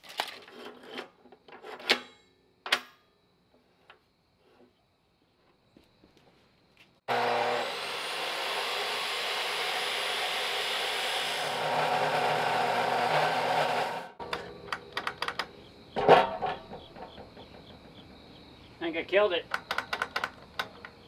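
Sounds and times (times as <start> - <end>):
chop saw cutting steel: 7.1 - 14.2.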